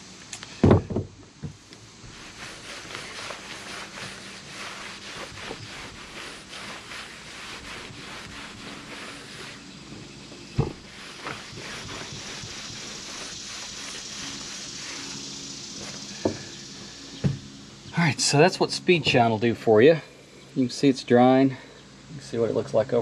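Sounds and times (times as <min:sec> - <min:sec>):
knock: 0:00.6 - 0:01.6
towel rubbing on painted metal: 0:01.8 - 0:19.3.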